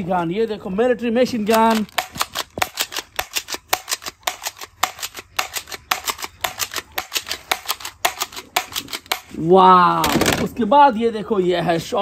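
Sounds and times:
toy machine gun rattling: 1.3s - 9.4s.

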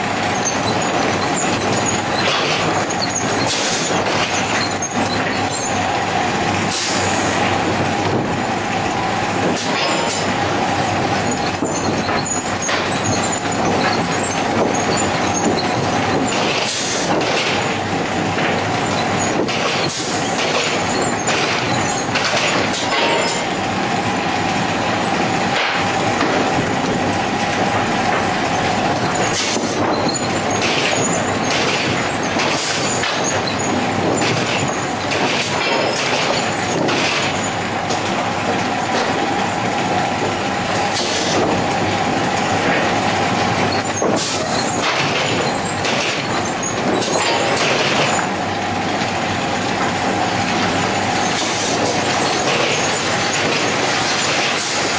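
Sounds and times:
conveyor mechanical clatter: 0.0s - 54.9s
steady machine whine: 0.0s - 54.9s
boards clanking on metal: 11.0s - 23.5s, 27.7s - 39.3s, 40.2s - 41.8s, 42.4s - 48.4s.

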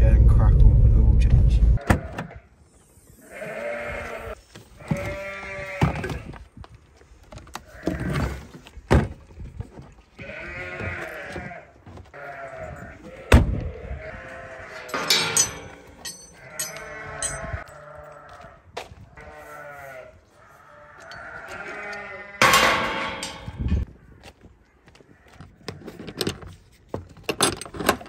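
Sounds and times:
sheep bleating: 3.2s - 6.3s, 10.2s - 15.1s, 16.4s - 18.6s, 19.2s - 23.3s.

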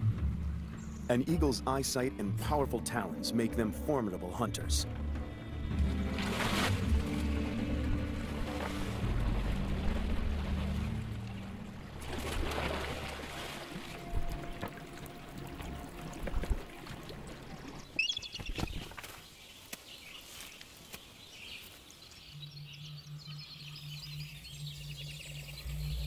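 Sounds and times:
water splashing: 5.8s - 19.3s
high bird twittering: 18.0s - 18.9s.

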